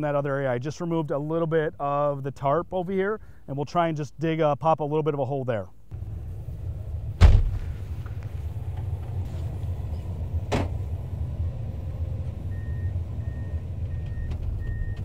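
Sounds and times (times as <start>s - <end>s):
excavator diesel engine running: 5.9s - 15.0s
sharp knock: 7.2s - 7.8s.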